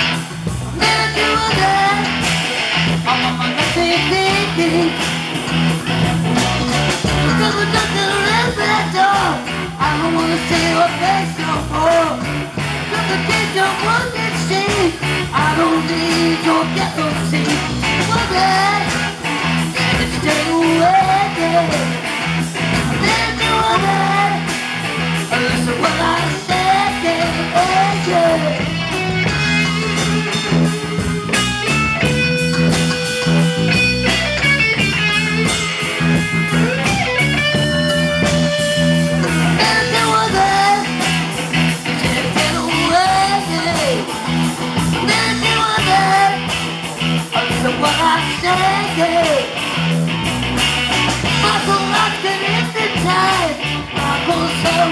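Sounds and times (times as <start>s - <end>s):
electric guitar lead melody: 0.0s - 54.9s
live rock band playing: 0.0s - 54.9s.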